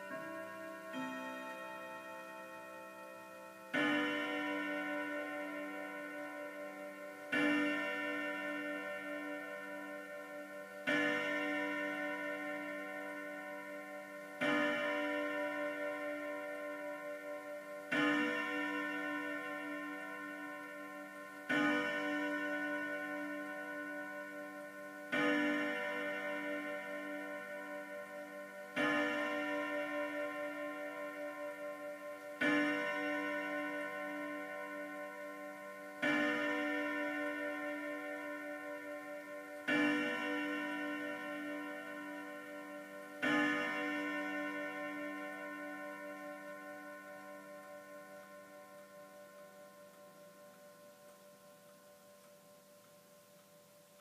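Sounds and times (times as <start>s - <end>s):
pendulum clock striking: 0.0s - 54.0s.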